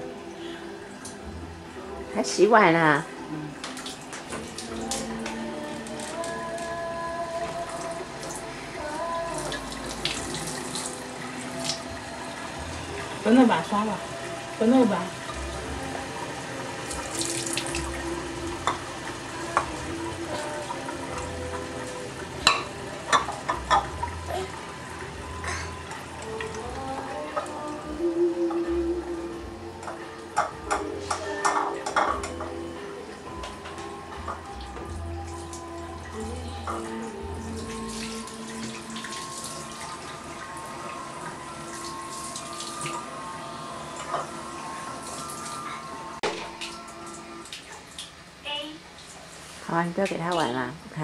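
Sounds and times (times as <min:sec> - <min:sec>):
faucet running into sink: 0:09.1 - 0:27.6.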